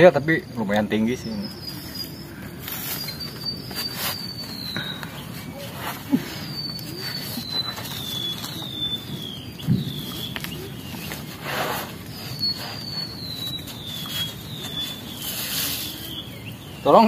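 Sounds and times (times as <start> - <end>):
rustle: 0.6 - 17.0
bird whistling falling notes: 1.1 - 17.0
hands and feet scuffing tree trunk: 2.6 - 16.5.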